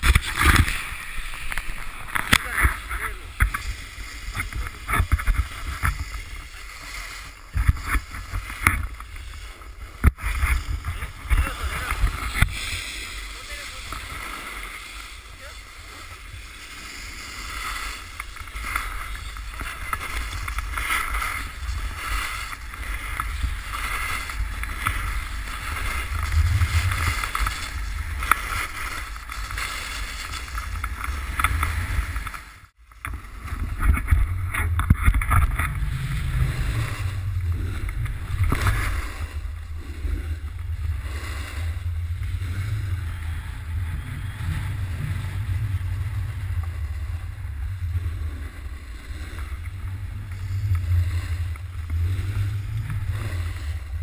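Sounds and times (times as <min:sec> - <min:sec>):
snowboard scraping on snow: 0:00.0 - 0:54.0
wind buffeting microphone: 0:15.8 - 0:32.3, 0:33.5 - 0:54.0.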